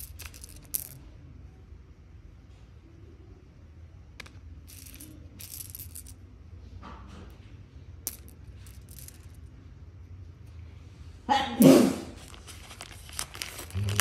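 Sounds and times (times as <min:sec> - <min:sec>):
gemstones clicking together: 0:00.0 - 0:01.0, 0:04.2 - 0:06.1, 0:08.0 - 0:09.4.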